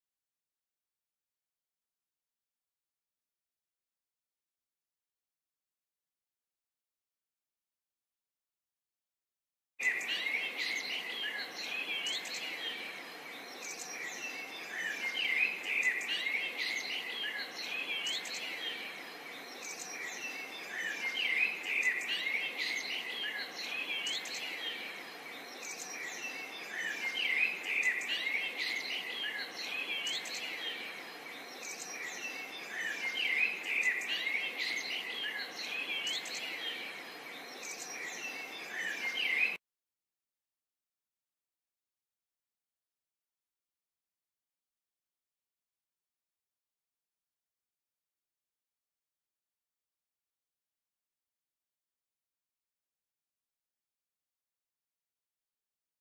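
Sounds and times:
birds chirping and singing: 0:09.8 - 0:39.6.

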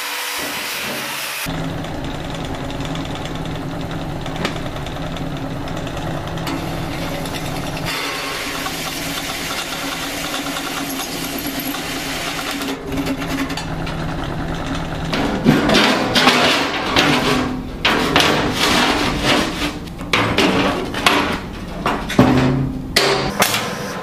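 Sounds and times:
drill press motor hum: 0:01.5 - 0:15.5
drill bit cutting steel: 0:06.5 - 0:12.8.

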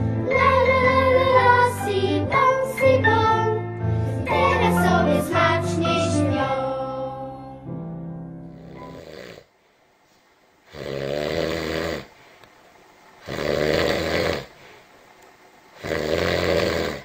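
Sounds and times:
rough snoring: 0:08.4 - 0:09.5, 0:10.7 - 0:12.1, 0:13.2 - 0:14.6, 0:15.8 - 0:17.0.

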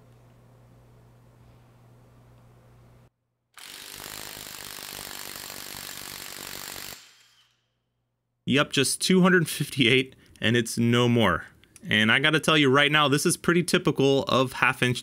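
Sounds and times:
impact wrench hammering: 0:03.6 - 0:07.6.

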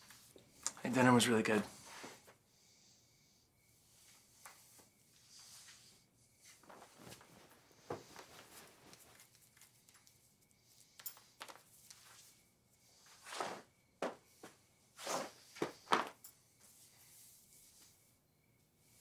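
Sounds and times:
faint rustles: 0:03.7 - 0:18.2.

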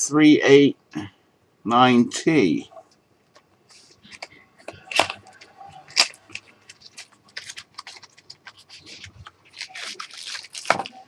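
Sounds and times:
paper rustling: 0:03.7 - 0:11.0.

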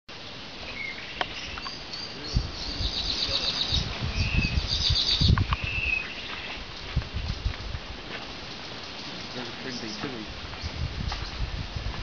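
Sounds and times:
bird singing whistled notes: 0:00.7 - 0:06.3.

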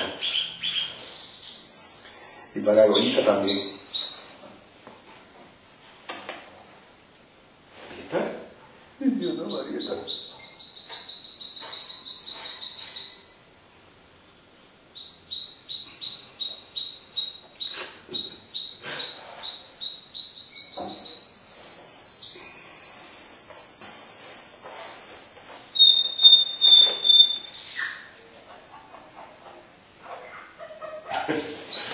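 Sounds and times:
songbird singing: 0:00.0 - 0:04.4, 0:09.0 - 0:13.4, 0:14.4 - 0:29.3, 0:31.7 - 0:31.9.

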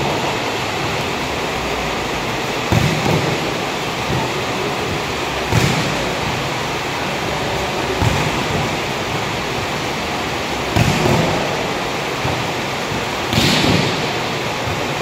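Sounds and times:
steady rushing noise: 0:00.0 - 0:15.0
volleyball hits echoing: 0:02.6 - 0:06.8, 0:07.8 - 0:15.0.

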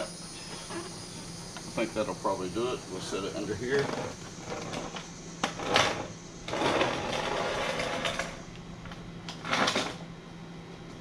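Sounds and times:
plastic tube scraping on concrete: 0:03.8 - 0:08.4.

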